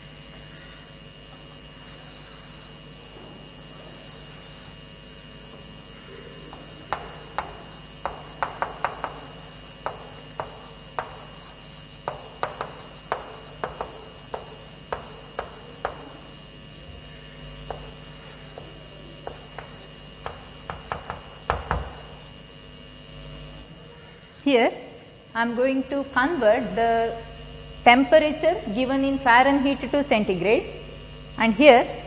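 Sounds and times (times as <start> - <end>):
steady low hum: 0.0 - 32.0
chalk tapping on blackboard: 6.5 - 16.2, 17.6 - 22.2
loud knock: 6.5 - 16.2, 18.6 - 22.2.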